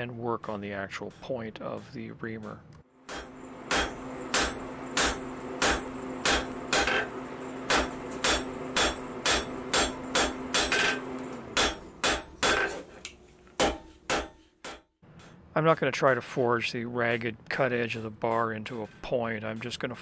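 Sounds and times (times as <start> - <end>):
anvil ringing: 3.0 - 12.8, 13.6 - 14.9
hammer blows on hot metal: 3.1 - 12.8.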